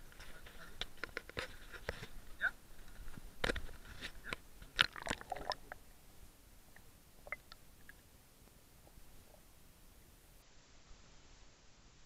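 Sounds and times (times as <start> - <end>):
water splashing against camera: 3.1 - 5.9
faint underwater clicks: 6.7 - 9.4.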